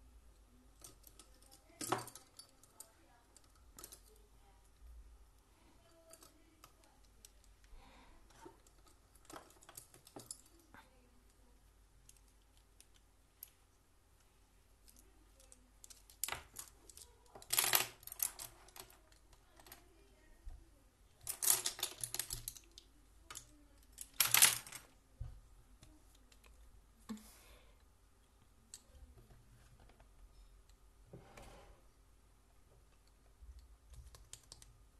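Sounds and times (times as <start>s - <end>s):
light clicks and taps: 32.7s - 34.8s.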